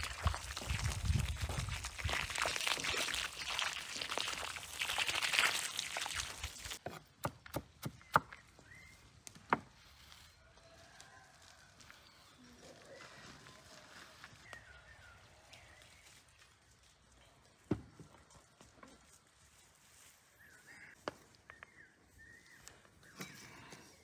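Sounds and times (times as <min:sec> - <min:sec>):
water splashing onto soil: 0:00.0 - 0:06.8.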